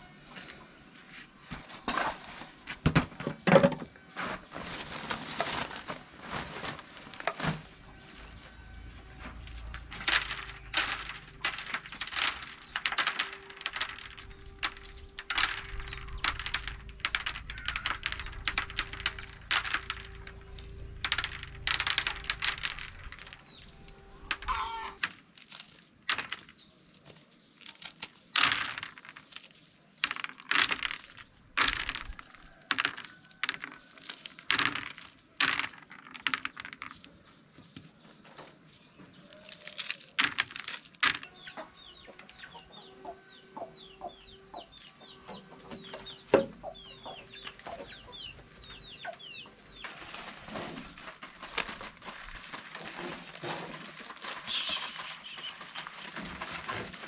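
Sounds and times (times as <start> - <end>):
corn kernels crackling onto tray: 4.2 - 8.5, 9.1 - 37.2, 39.2 - 41.5, 49.7 - 57.0.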